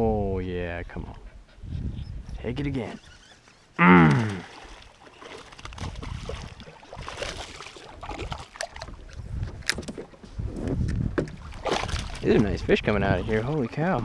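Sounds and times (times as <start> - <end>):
person exclaiming: 3.8 - 4.5
fish splashing in water: 4.1 - 9.1, 11.4 - 12.2.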